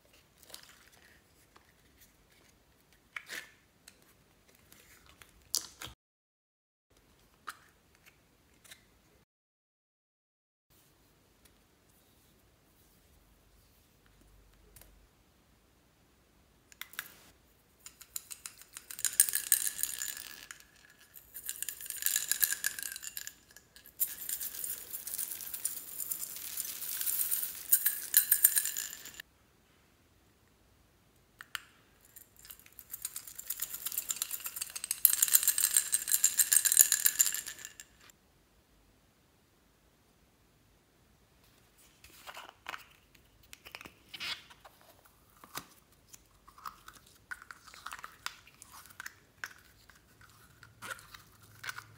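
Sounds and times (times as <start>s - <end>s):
glitter rattling in shaker bottle: 17.8s - 29.2s, 32.1s - 38.1s.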